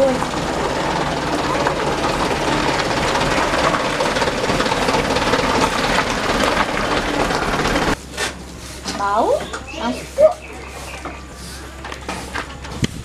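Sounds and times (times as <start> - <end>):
diesel truck engine running: 0.0 - 13.0
shovels scraping gravel: 7.8 - 12.8.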